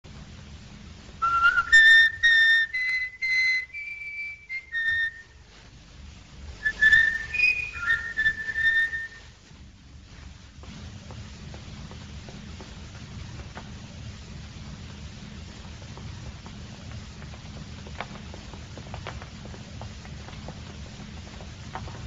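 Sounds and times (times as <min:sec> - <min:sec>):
low background hum: 0:00.0 - 0:22.0
person whistling a tune: 0:01.2 - 0:05.4, 0:06.6 - 0:09.2.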